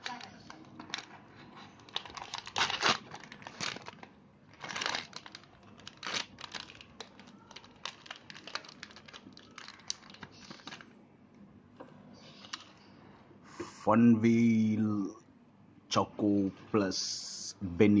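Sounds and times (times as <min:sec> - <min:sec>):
plastic wrapper crinkling and tearing: 0:00.0 - 0:10.9.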